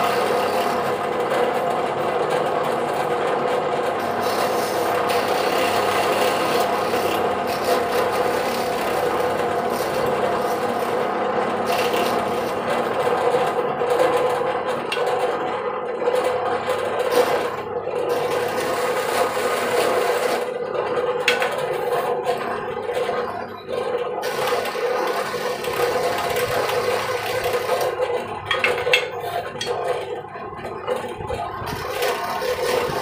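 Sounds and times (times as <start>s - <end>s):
drill bit boring into hardwood: 0.0s - 1.2s, 4.0s - 13.2s, 17.1s - 20.5s, 24.2s - 28.0s, 31.7s - 33.0s
drill press motor hum: 0.0s - 33.0s.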